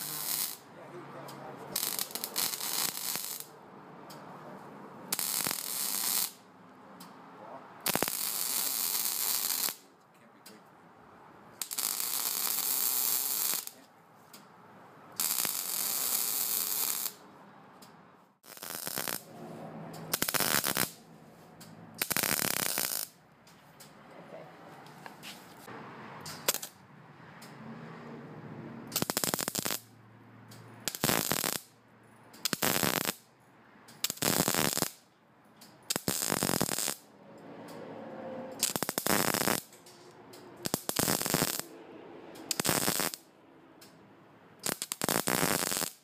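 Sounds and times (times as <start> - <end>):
welding arc crackling: 0.0 - 0.7, 1.7 - 3.6, 5.1 - 6.4, 7.8 - 9.9, 11.6 - 13.8, 15.2 - 17.2, 18.4 - 19.3, 20.1 - 21.0, 22.0 - 23.2, 26.4 - 26.8, 28.9 - 29.9, 30.8 - 31.7, 32.4 - 33.2, 34.0 - 35.0, 35.9 - 37.1, 38.6 - 39.8, 40.6 - 41.7, 42.4 - 43.3, 44.6 - 46.0.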